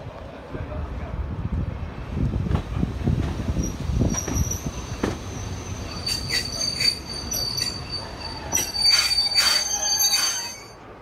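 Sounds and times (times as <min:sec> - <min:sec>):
train rumbling along: 0:00.0 - 0:11.0
high wheel squeal: 0:03.6 - 0:10.8
sharp clatters and squeals: 0:04.1 - 0:10.8.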